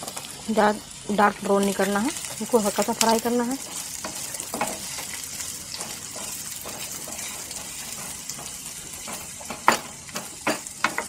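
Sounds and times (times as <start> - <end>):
onions sizzling in oil: 0.0 - 11.0
spatula scraping and tapping pan: 3.0 - 11.0.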